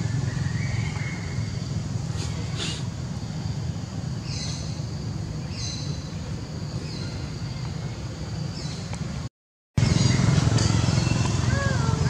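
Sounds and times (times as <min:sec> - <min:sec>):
bird chirping: 0:04.2 - 0:09.0.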